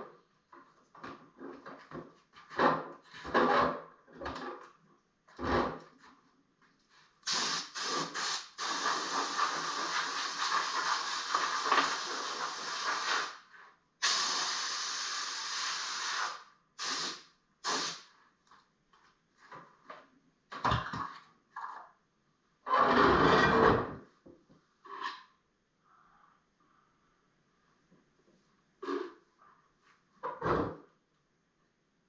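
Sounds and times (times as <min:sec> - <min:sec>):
air blow gun hissing: 0:07.3 - 0:13.4, 0:14.0 - 0:18.0.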